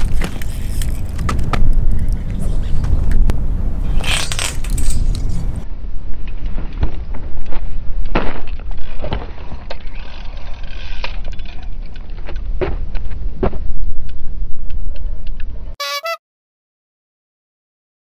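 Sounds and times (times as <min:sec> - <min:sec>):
wind buffeting microphone: 0:00.0 - 0:05.6.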